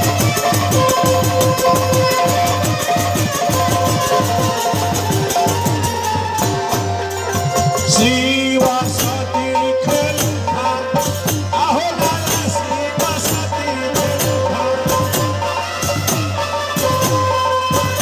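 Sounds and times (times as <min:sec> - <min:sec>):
hand cymbals clashing: 0:00.0 - 0:09.2
held melody line: 0:00.0 - 0:18.0.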